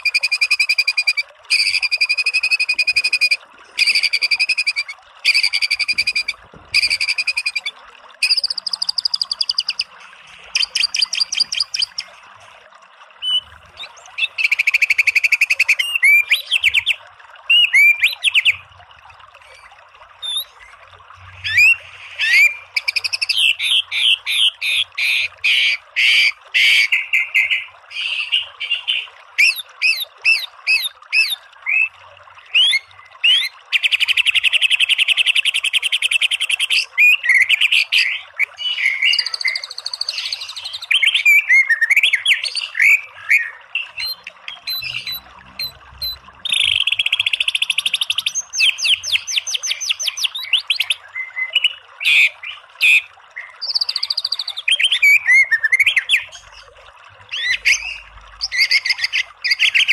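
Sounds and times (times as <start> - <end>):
songbird whistling: 0.0 - 9.9, 10.5 - 12.1, 38.6 - 52.2
running water hiss: 0.0 - 59.9.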